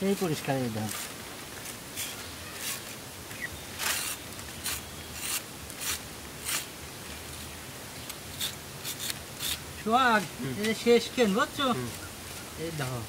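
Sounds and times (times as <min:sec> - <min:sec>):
tripe scraped by hand: 0:00.0 - 0:03.0, 0:03.7 - 0:06.7, 0:08.3 - 0:09.6.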